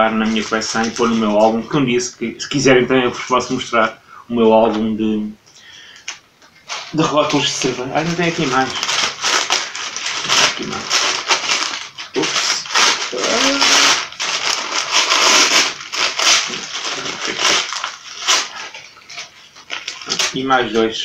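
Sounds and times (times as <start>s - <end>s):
paper envelope rustling and crinkling: 0.0s - 1.7s, 6.7s - 20.9s.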